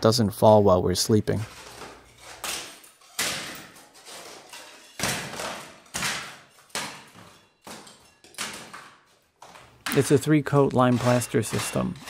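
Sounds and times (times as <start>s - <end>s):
plaster crumbling and falling: 1.5s - 10.1s.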